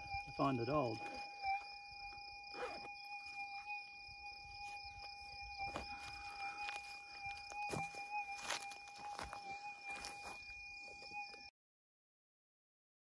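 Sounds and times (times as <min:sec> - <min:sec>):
metal detector threshold tone: 0:00.0 - 0:11.5.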